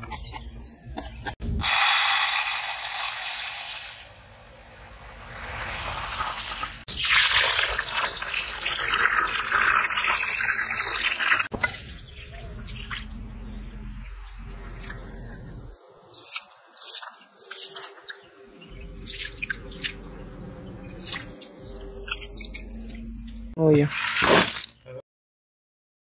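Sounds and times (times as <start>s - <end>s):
water pouring into bowl: 6.9s - 11.9s.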